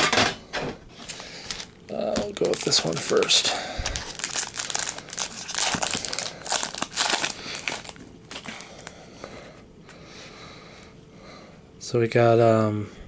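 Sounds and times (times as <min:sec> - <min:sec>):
foil wrapper crinkling: 0:01.0 - 0:09.0.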